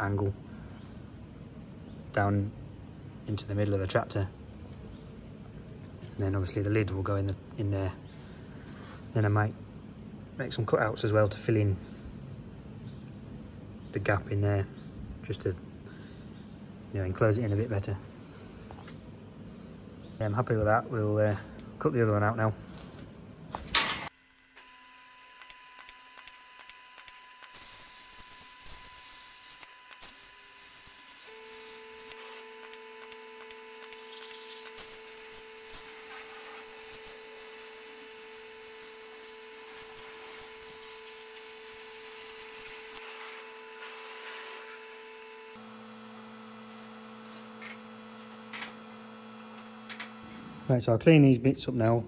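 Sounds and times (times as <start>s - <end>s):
electrical hum with held tones: 0.0s - 52.0s
plasma cutter hiss: 26.2s - 45.6s.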